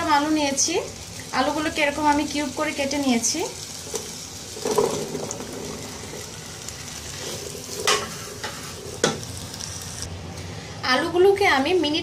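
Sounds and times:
potatoes sizzling in oil: 0.0 - 10.1
potatoes clattering into pan: 3.9 - 6.2.

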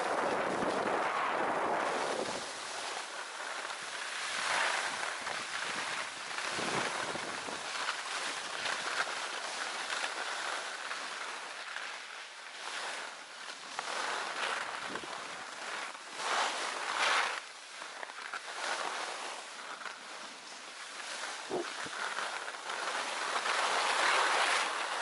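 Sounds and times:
wind on microphone: 0.0 - 3.2, 4.8 - 7.7
board sliding over snow: 0.0 - 25.0.

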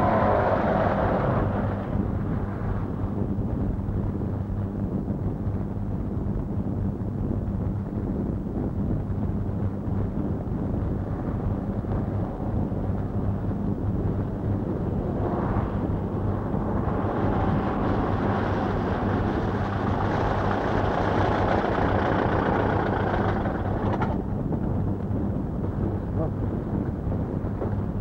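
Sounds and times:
rushing noise: 0.0 - 3.0, 11.0 - 22.8.

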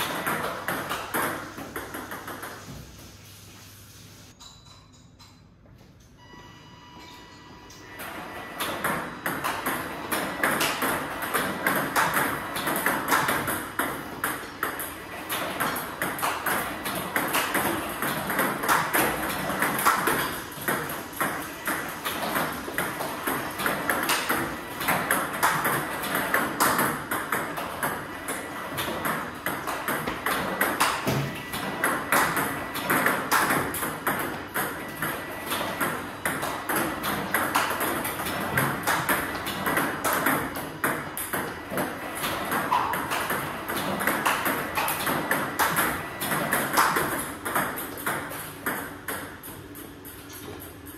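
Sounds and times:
table tennis balls clicking: 0.0 - 2.6, 8.6 - 50.9.

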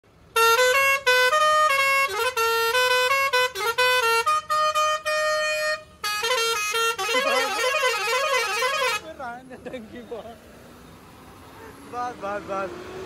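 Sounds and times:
musical truck horn tune: 0.3 - 9.2.

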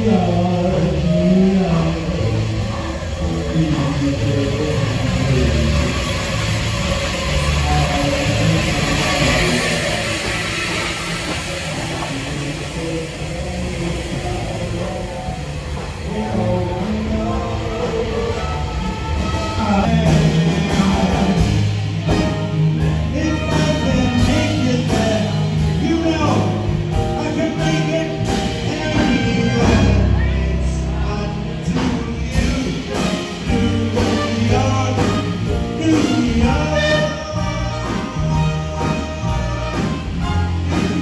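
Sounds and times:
song with singing and bass: 0.0 - 41.0.

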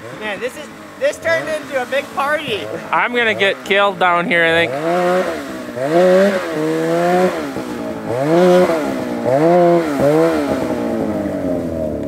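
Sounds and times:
snowmobile engine revving: 0.0 - 12.0.

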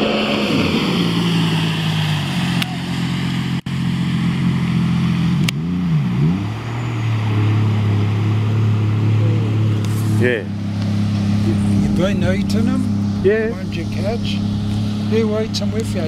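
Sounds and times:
motor engine running: 8.8 - 16.0.

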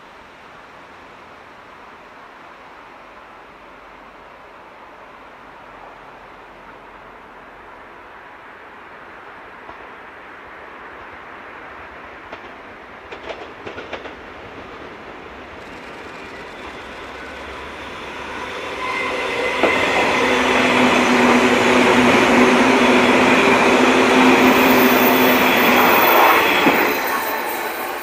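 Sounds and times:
electric train passing: 10.2 - 28.0
train motor whine: 15.6 - 28.0.

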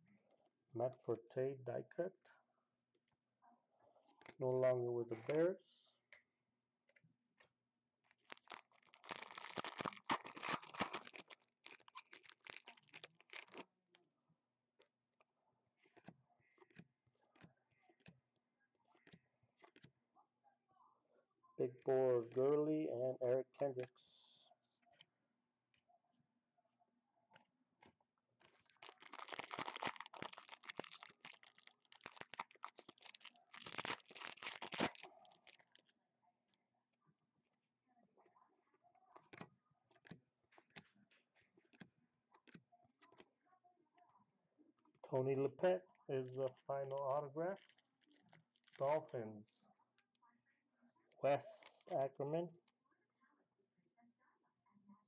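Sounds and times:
foil wrapper tearing and crinkling: 8.1 - 13.7, 28.4 - 35.9, 47.6 - 48.8.

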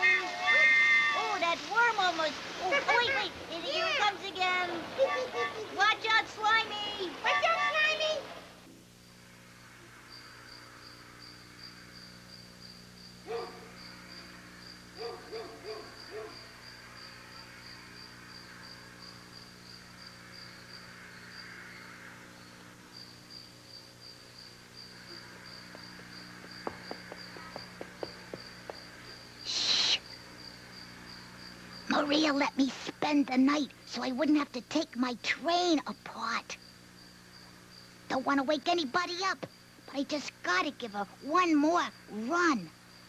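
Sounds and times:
crickets chirping: 0.0 - 43.0
owl hoots: 15.0 - 16.4.

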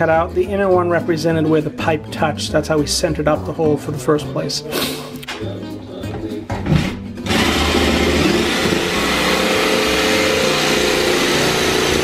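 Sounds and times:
electric jigsaw cutting drywall: 7.2 - 12.0.

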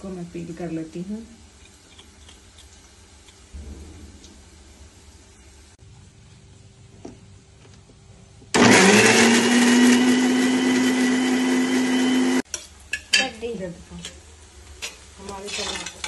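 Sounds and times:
mixer grinder motor grinding: 8.6 - 12.4.

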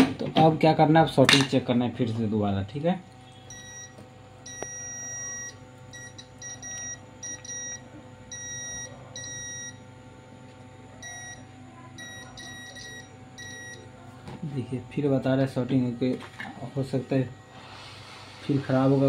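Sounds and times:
multimeter continuity beeps: 3.3 - 9.8, 11.0 - 13.9.

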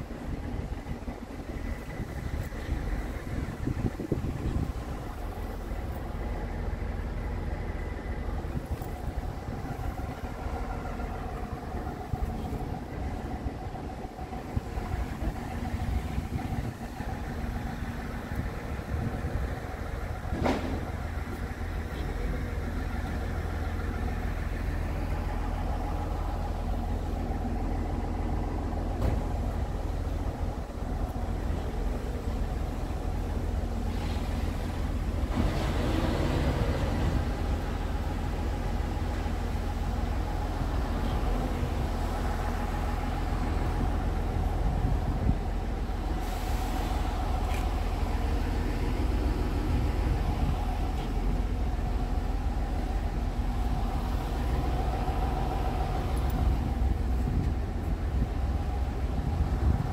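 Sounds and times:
wind on microphone: 0.0 - 5.5, 8.4 - 22.5, 43.0 - 52.0, 53.5 - 59.9
vehicle rumble: 0.0 - 59.9.

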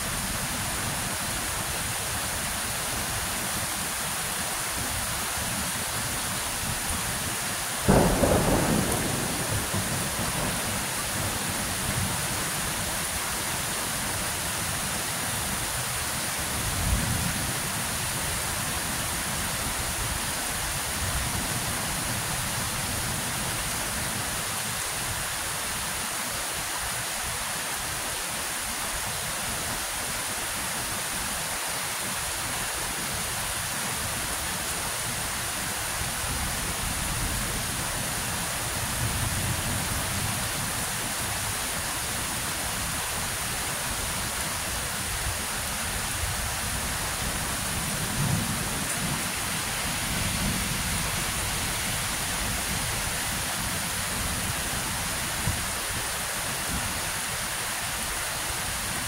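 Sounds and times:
steady rain falling: 0.0 - 59.0
loud thunderclap: 7.9 - 12.2
low rumble of thunder: 7.9 - 13.2.

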